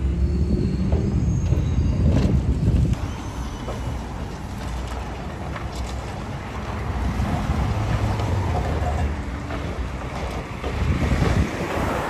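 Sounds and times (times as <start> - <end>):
excavator engine rumbling: 0.0 - 12.0
concrete crunching: 2.2 - 11.5.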